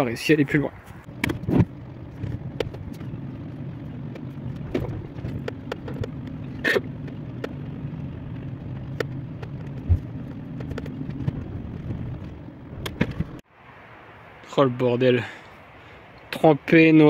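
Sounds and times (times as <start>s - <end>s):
low engine hum in car cabin: 0.0s - 13.5s
low thud: 9.8s - 10.1s.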